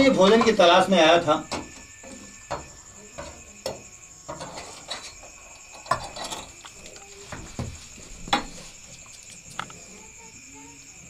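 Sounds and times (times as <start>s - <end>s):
insect chirring: 0.0s - 11.0s.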